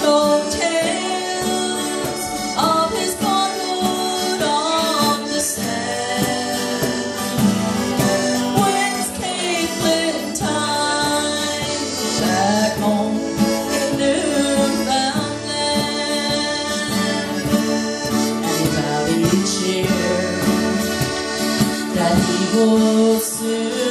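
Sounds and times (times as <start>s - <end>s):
cajon beat: 0.0s - 23.9s
fiddle: 0.0s - 23.9s
strummed acoustic guitar: 0.0s - 23.9s.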